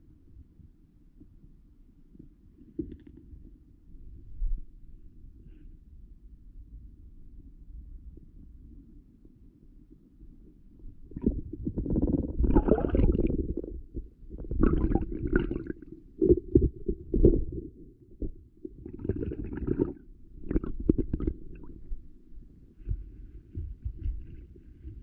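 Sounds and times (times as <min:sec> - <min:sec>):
muffled underwater stream gurgling: 0:11.0 - 0:25.0.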